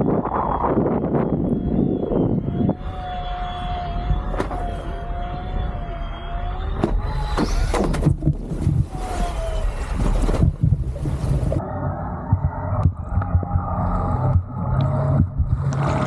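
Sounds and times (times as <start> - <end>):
electric motor whine: 0.0 - 7.8
wind buffeting microphone: 0.0 - 11.6
board slapping water: 7.2 - 11.6.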